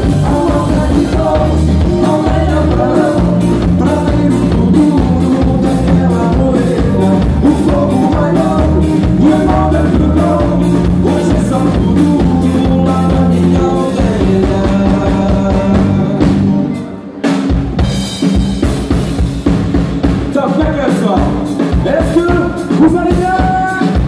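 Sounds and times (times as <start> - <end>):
person singing: 0.0 - 17.2
accordion: 0.0 - 17.5
drum kit beat: 0.0 - 24.0
live band playing: 0.0 - 24.0.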